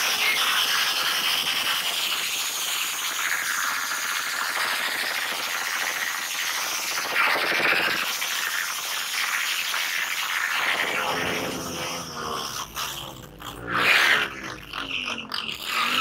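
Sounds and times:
motorcycle engine revving: 0:10.6 - 0:16.0.

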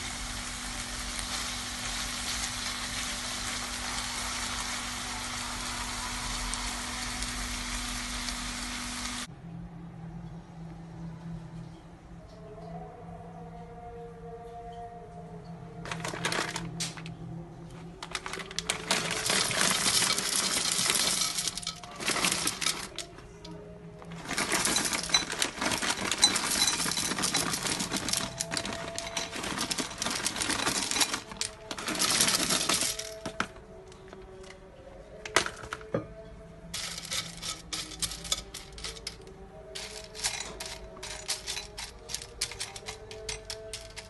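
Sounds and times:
dry pasta pouring into glass bowl: 0:18.0 - 0:23.1, 0:24.1 - 0:33.5, 0:36.8 - 0:39.2, 0:39.8 - 0:44.0.

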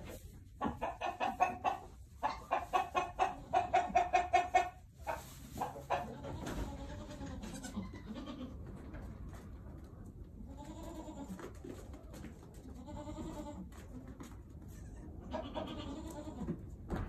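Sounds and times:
goat bleating: 0:06.0 - 0:08.6, 0:10.4 - 0:11.4, 0:12.7 - 0:13.8, 0:14.7 - 0:16.6.

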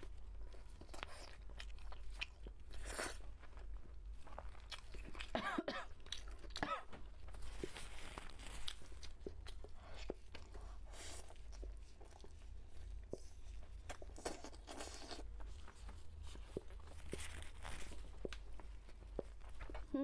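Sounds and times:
chewing meat: 0:00.0 - 0:20.0.

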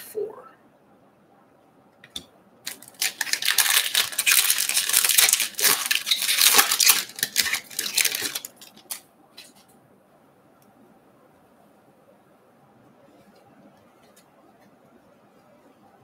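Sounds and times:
foil wrapper crackling: 0:02.6 - 0:09.6
cards rustling: 0:02.7 - 0:09.7.

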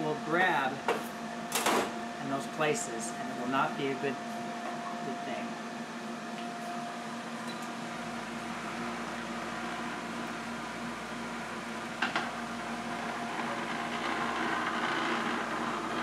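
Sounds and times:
machine humming: 0:00.0 - 0:16.0
vibrating table rumble: 0:12.0 - 0:16.0.

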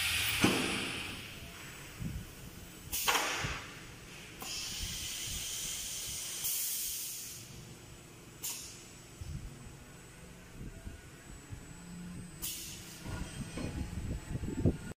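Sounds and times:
sharp puff of air: 0:00.0 - 0:01.4, 0:02.9 - 0:07.6, 0:12.4 - 0:13.0
compressed air hissing: 0:00.0 - 0:02.1, 0:02.8 - 0:07.6, 0:08.4 - 0:09.0, 0:12.4 - 0:13.1.

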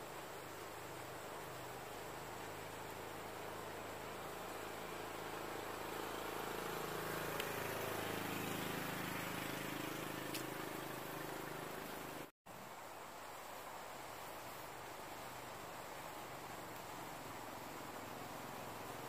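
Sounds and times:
outdoor hiss: 0:00.0 - 0:19.0
motor engine humming: 0:03.2 - 0:12.3.

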